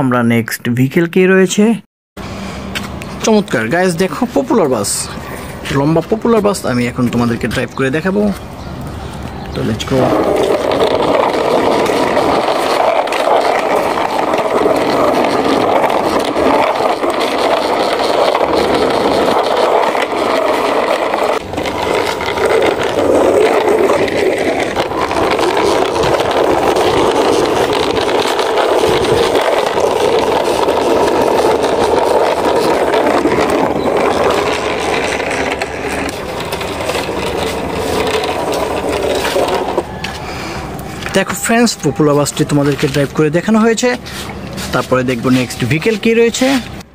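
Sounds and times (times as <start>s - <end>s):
toy wheels rolling on concrete: 2.2s - 46.9s.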